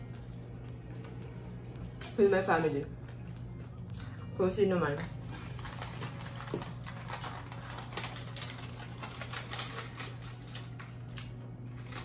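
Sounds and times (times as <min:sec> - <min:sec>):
steady low hum: 0:00.0 - 0:09.1
plastic packaging crinkling: 0:05.4 - 0:12.0.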